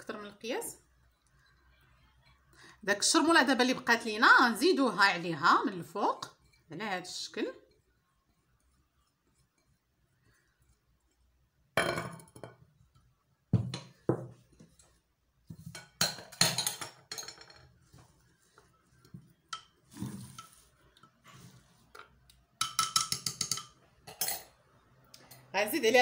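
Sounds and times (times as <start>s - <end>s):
utensil clinking on clay pot: 22.0s - 24.6s.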